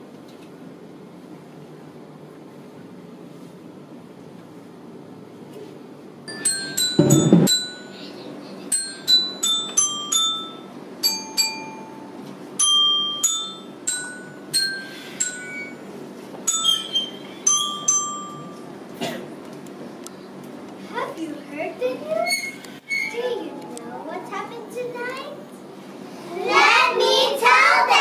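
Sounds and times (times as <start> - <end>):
bell-like mallet percussion notes: 6.3 - 15.8, 17.5 - 18.7
loud low rumble: 7.0 - 7.5.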